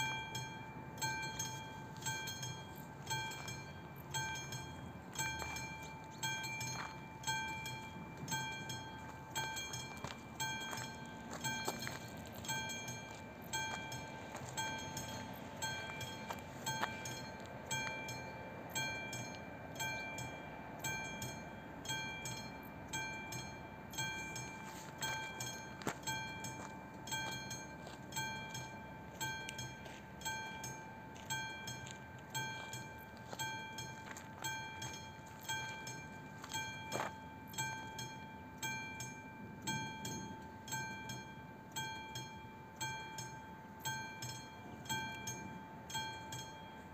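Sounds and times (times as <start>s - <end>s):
level crossing warning bell: 0.0s - 46.9s.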